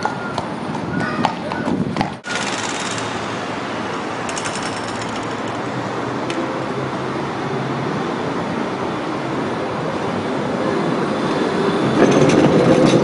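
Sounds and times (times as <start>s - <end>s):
street noise: 0.0s - 13.0s
tram rumbling along track: 0.0s - 13.0s
rapid clicking: 2.3s - 3.2s, 4.3s - 5.6s.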